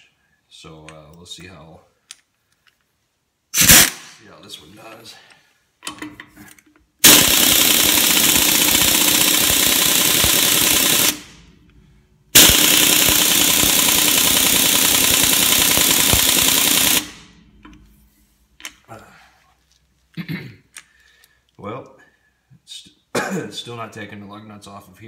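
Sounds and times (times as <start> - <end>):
air impact wrench hammering: 3.6 - 4.1, 7.0 - 17.8.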